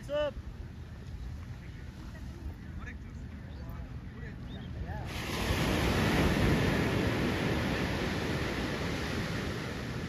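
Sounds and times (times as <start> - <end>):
wind: 0.0 - 10.0
surf rushing: 5.0 - 10.0.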